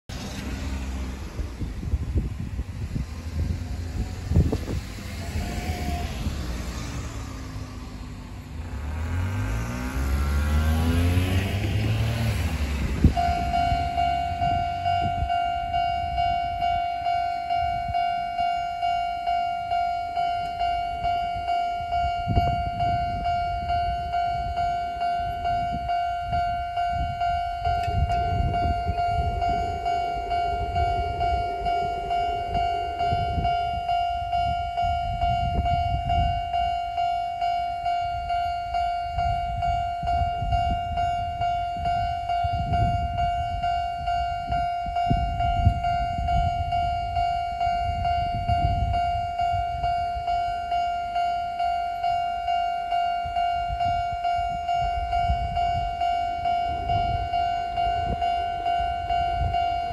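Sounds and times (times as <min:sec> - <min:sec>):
vehicle passing: 0:00.1 - 0:17.8, 0:20.9 - 0:40.6
level-crossing alarm bell: 0:03.0 - 0:59.9.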